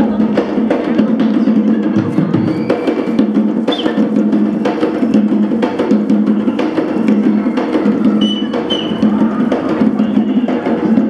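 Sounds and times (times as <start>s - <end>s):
hand drumming fast rhythm: 0.0s - 11.0s.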